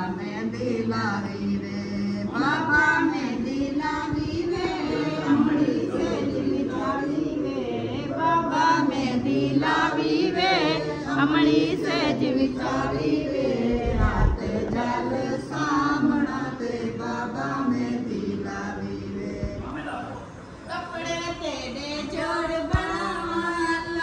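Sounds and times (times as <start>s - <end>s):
group singing: 0.0s - 24.0s
low thump: 13.7s - 14.7s.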